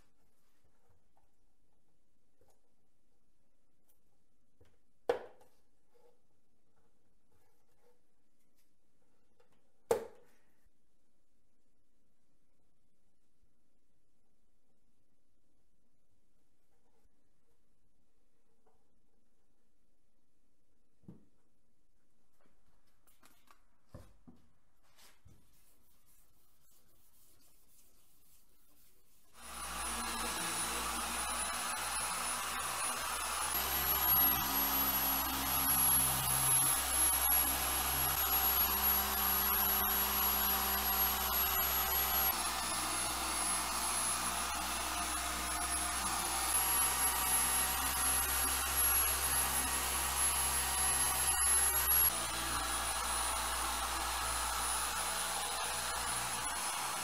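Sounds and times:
electric polisher whine: 29.4s - 57.0s.

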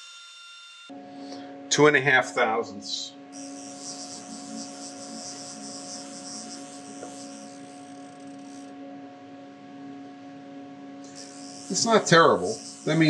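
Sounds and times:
electrical hum: 0.0s - 13.0s
high hiss: 11.1s - 13.0s.

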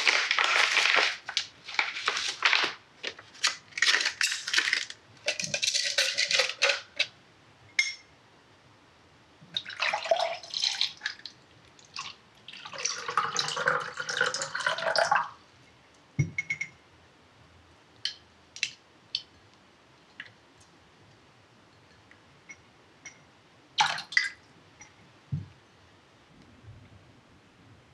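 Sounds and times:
gelatin sheet crackling: 0.0s - 5.0s
water pouring into glass: 9.6s - 11.2s, 12.0s - 15.4s.

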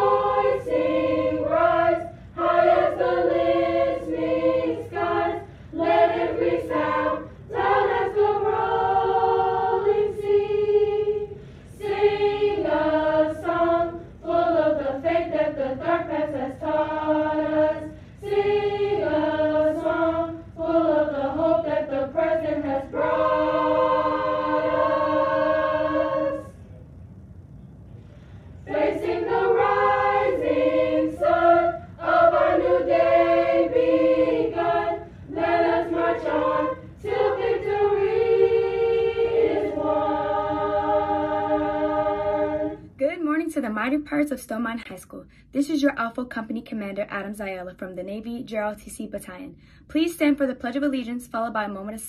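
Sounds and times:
choir singing: 0.0s - 26.7s, 28.6s - 43.0s.

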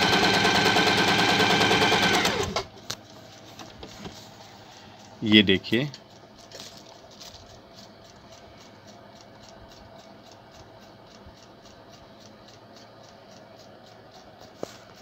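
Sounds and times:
soft regular ticking: 4.3s - 15.0s.

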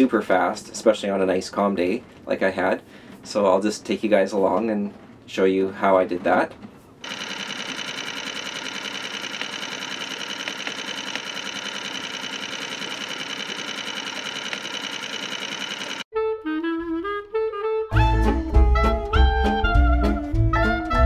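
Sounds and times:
outboard motor running: 7.0s - 16.0s
saxophone swing music: 16.2s - 21.0s.

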